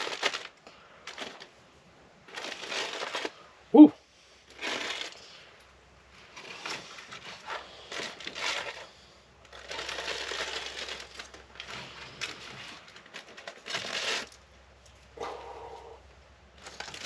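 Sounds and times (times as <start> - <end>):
aluminium foil crinkling and tearing: 0.0 - 1.6, 2.2 - 3.4, 4.5 - 5.4, 6.3 - 14.4, 16.6 - 17.0.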